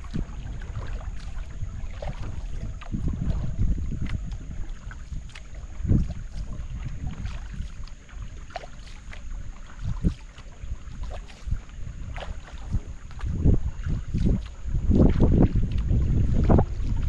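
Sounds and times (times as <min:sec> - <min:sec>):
low rumble: 0:00.0 - 0:08.0, 0:11.5 - 0:17.0
paddle splashing through water: 0:00.0 - 0:17.0.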